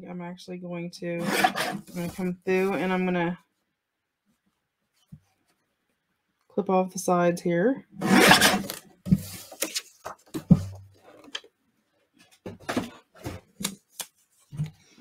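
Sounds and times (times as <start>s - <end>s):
paper trimmer blade cutting paper: 1.2s - 2.0s, 8.0s - 8.8s.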